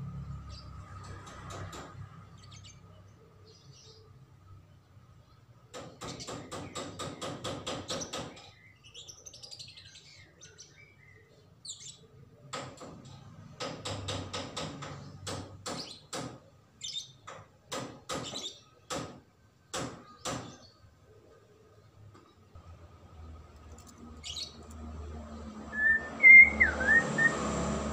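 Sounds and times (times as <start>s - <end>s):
songbird whistling: 25.7s - 27.5s.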